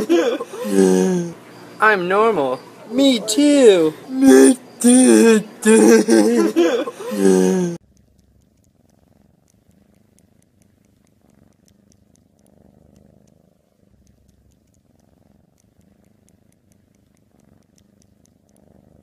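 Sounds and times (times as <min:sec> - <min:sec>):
cat purring: 0:00.0 - 0:19.0
faint ticks: 0:07.8 - 0:19.0.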